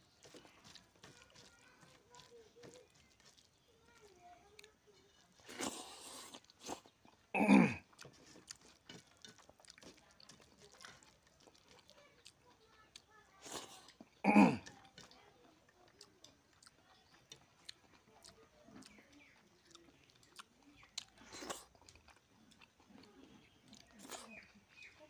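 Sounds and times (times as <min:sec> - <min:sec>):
wet chewing and mixing clicks: 0:00.0 - 0:25.0.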